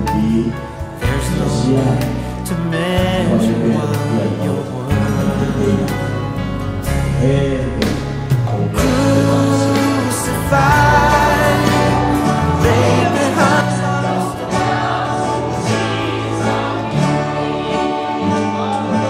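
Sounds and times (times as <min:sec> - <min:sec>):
acoustic guitar: 0:00.0 - 0:19.0
bass line: 0:00.0 - 0:19.0
group singing a gospel song: 0:08.6 - 0:19.0.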